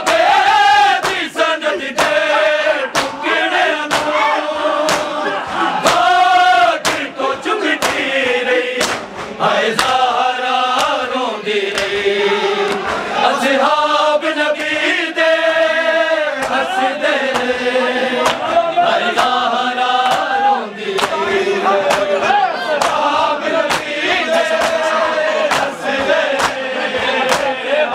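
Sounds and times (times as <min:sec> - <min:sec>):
hands beating on chests: 0:00.0 - 0:04.2, 0:04.8 - 0:08.1, 0:08.8 - 0:10.0, 0:25.5 - 0:27.6
men chanting a lament: 0:00.0 - 0:27.9.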